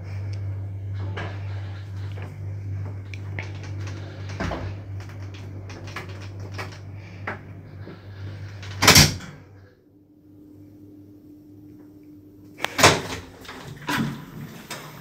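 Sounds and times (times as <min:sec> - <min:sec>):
elevator running hum: 0:00.0 - 0:15.0
clicks and knocks: 0:03.1 - 0:07.4.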